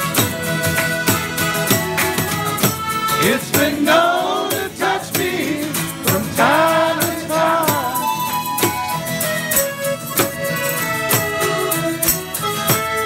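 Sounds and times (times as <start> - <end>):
live band music: 0.0 - 13.0.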